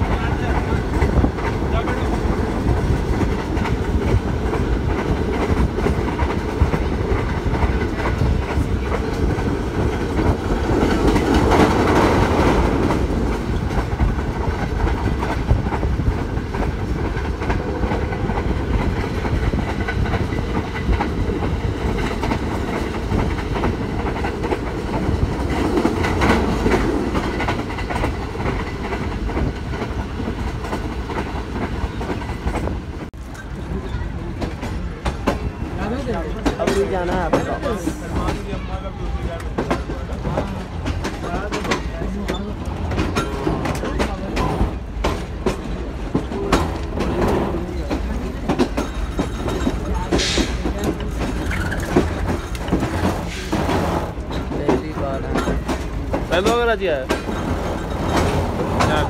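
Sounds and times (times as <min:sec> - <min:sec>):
train rumble: 0:00.0 - 0:59.0
wheels clickety-clack over rail joints: 0:00.0 - 0:59.0.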